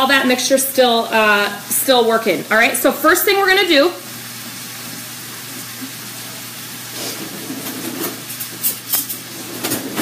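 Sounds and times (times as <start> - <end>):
food sizzling in a frying pan: 0.0 - 10.0
kitchenware knocks and clatters: 7.2 - 10.0.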